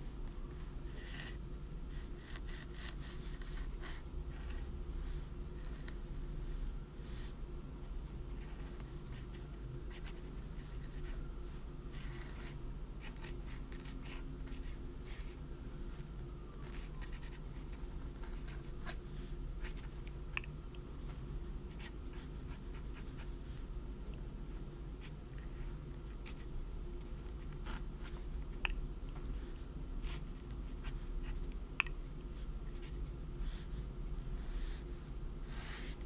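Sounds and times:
low background hum: 0.0 - 36.0
pen nib scratching paper: 2.0 - 4.7, 11.9 - 15.4, 16.6 - 19.0, 25.0 - 26.5, 27.1 - 28.7, 30.0 - 31.6, 35.5 - 36.0.

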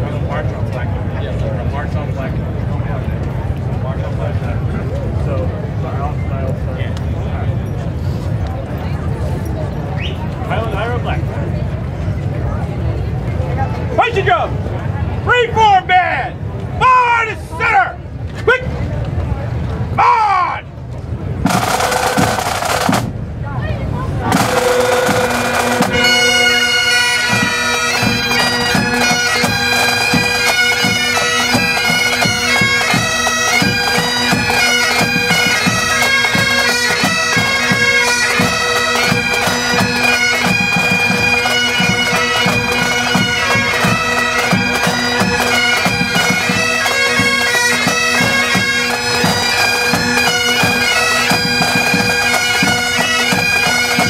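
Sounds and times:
snare drums beating: 21.4 - 23.1, 24.3 - 26.7
bagpipes playing: 24.3 - 54.0.

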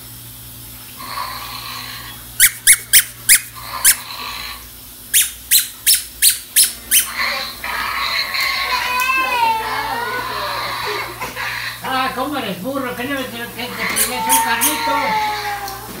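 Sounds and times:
toy squeaking: 2.4 - 4.0, 5.1 - 7.2, 13.8 - 14.9.

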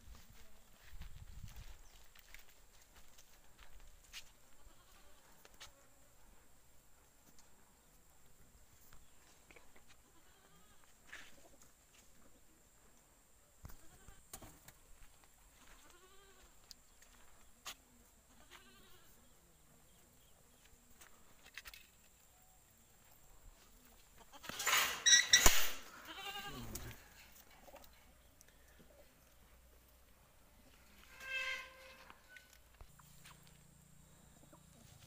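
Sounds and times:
goats bleating: 4.5 - 5.2, 18.3 - 19.1, 25.8 - 27.0.

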